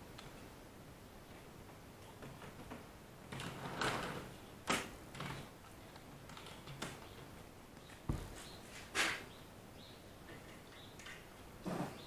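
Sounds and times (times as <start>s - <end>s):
short knocks and scrapes: 8.1s - 9.3s.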